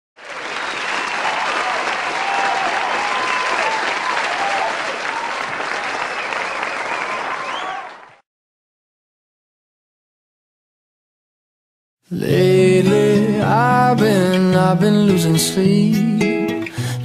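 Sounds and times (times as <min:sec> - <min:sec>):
crowd applauding and cheering: 0:00.2 - 0:08.2.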